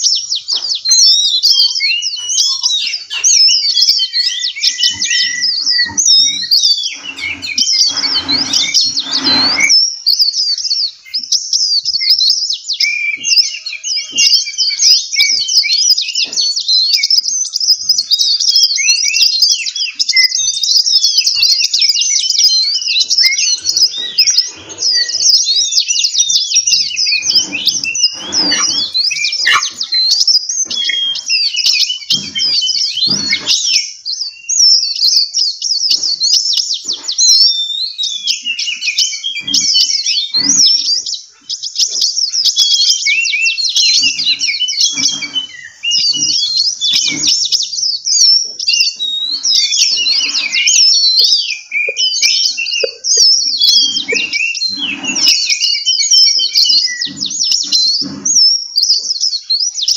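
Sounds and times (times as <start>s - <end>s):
songbirds singing: 0.0s - 59.9s.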